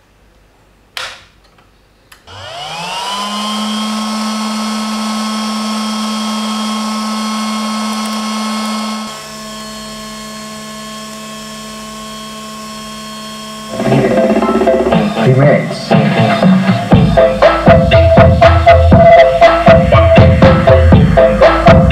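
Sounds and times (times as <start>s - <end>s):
cooling fan whine: 1.8s - 17.2s.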